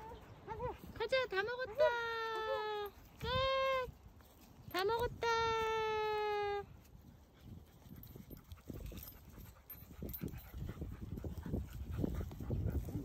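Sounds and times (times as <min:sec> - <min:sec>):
dog panting: 0:07.3 - 0:13.0.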